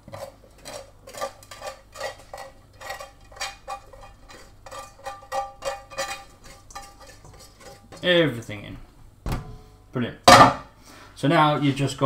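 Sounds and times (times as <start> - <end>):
spoon scraping a frying pan: 0.0 - 8.6.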